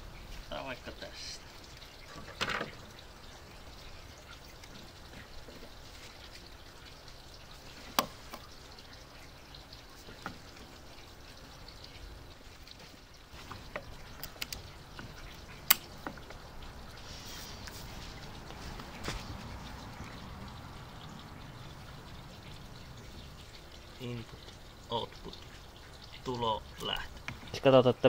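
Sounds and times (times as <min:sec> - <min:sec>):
faint steady hiss: 0:00.0 - 0:28.0.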